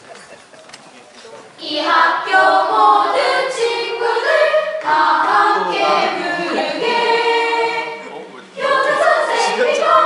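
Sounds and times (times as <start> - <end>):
high-pitched singing voices: 1.6 - 10.0.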